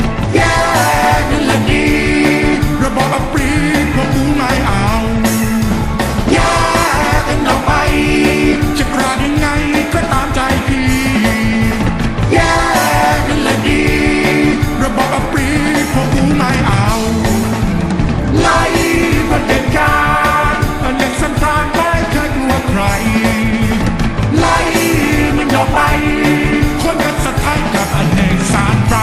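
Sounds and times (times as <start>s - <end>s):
rock song with singing: 0.0s - 29.0s.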